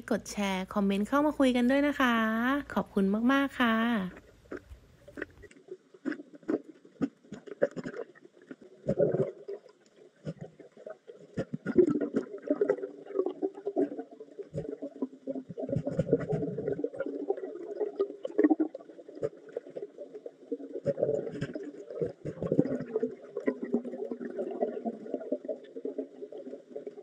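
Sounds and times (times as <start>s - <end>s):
underwater bubbly rumbling: 1.0s - 27.0s
underwater clicks and knocks: 4.1s - 9.4s, 15.5s - 17.1s.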